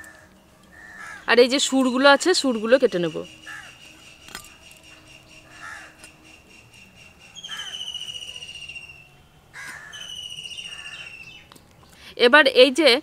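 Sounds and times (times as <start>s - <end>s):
crows cawing: 0.0s - 1.3s, 3.4s - 4.0s, 5.4s - 6.1s, 7.4s - 8.0s, 9.5s - 11.1s
insect high pulsing trill: 1.2s - 9.2s.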